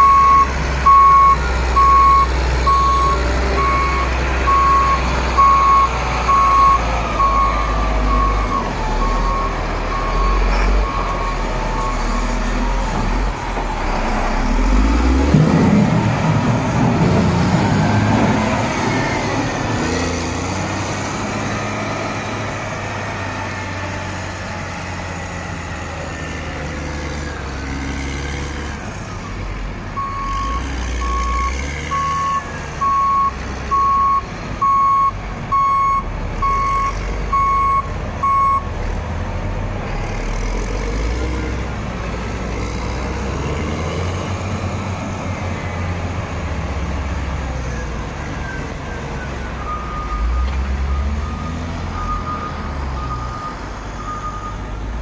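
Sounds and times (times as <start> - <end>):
backup alarm beeping: 0.0 - 12.0
diesel engine rumble: 0.0 - 55.0.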